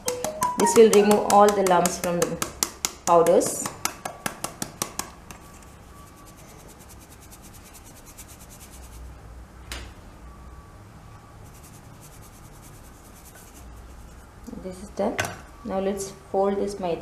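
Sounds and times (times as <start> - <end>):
flour sifter wires rasping on mesh: 5.4 - 9.0.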